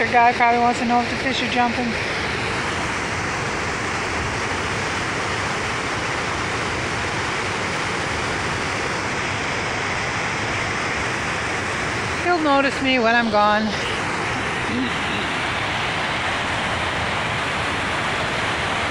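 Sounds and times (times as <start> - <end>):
water rushing over a spillway: 0.0 - 18.9.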